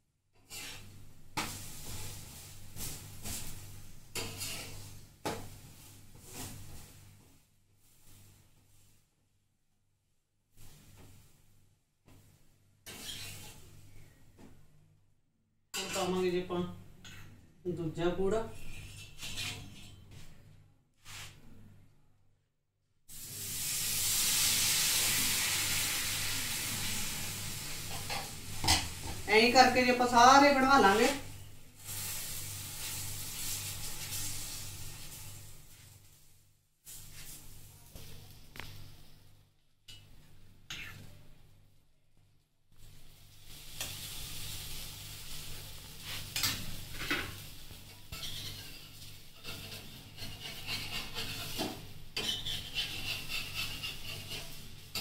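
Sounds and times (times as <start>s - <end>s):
spatula scraping pan: 0.4s - 2.1s, 2.8s - 5.0s, 12.9s - 13.7s, 15.8s - 16.2s, 18.5s - 20.0s, 48.0s - 55.0s
batter sizzling on a hot pan: 0.4s - 9.0s, 12.9s - 14.1s, 23.1s - 39.1s, 42.7s - 55.0s.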